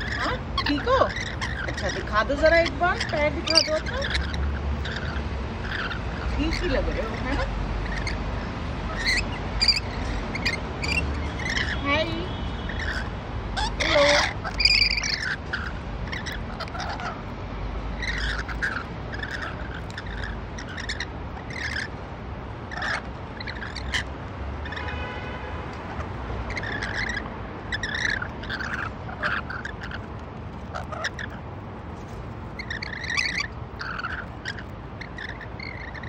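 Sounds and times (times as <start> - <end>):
birds chattering calls: 0.0 - 36.0.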